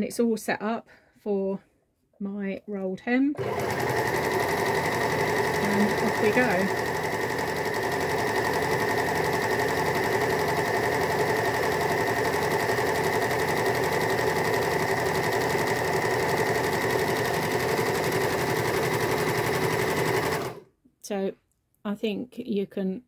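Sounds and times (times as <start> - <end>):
overlocker stitching: 3.4 - 20.7.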